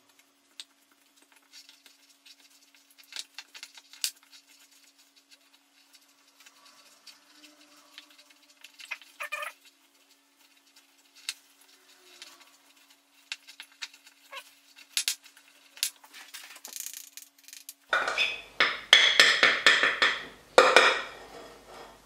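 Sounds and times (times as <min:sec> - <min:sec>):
spoon knocking against glass: 0:17.9 - 0:21.2
spoon scraping glass bowl: 0:21.0 - 0:22.0.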